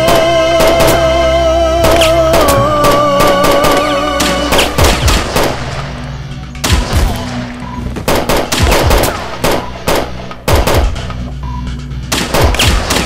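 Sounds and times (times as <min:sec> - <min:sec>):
held music tone: 0:00.0 - 0:12.8
automatic rifle fire: 0:08.1 - 0:11.0, 0:12.1 - 0:13.0.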